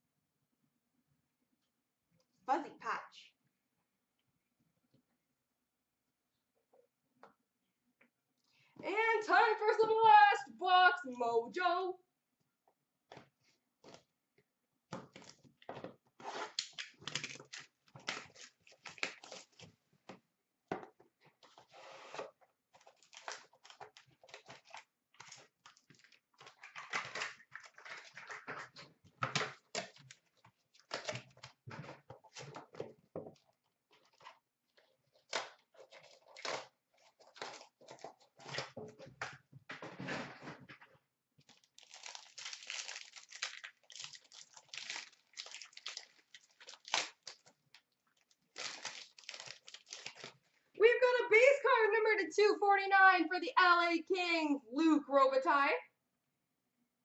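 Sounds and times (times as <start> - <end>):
cardboard tearing: 16.2 - 19.6, 34.0 - 38.8, 41.5 - 47.6, 48.2 - 50.4
foil wrapper crinkling: 16.5 - 19.7, 22.7 - 28.7, 33.4 - 38.7, 41.4 - 50.5.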